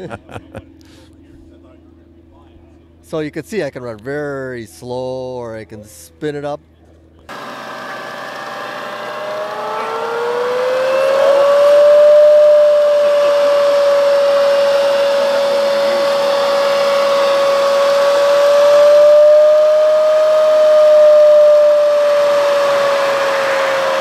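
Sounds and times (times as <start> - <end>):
electric motor whine: 7.3 - 24.0.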